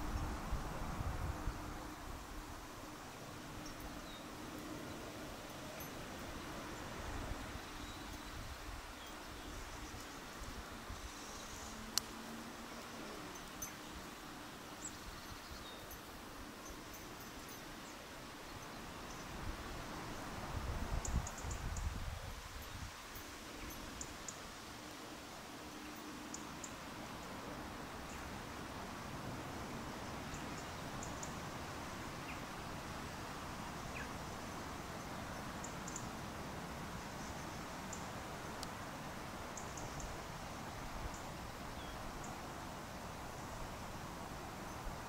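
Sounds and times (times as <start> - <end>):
wind buffeting microphone: 0.0 - 2.3
wind rumbling on microphone: 0.0 - 13.6, 18.8 - 24.1
wind hissing: 0.0 - 45.0
faint high ticks: 9.8 - 14.0, 37.9 - 38.8.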